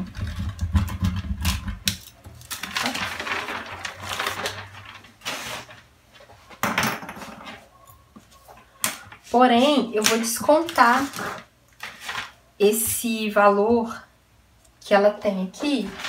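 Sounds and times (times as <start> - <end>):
paper rustling: 1.6 - 6.6, 8.2 - 13.0, 15.6 - 16.0.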